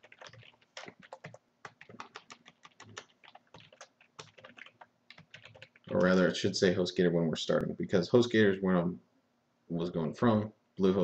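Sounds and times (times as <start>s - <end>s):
typing on keyboard: 0.0s - 6.1s.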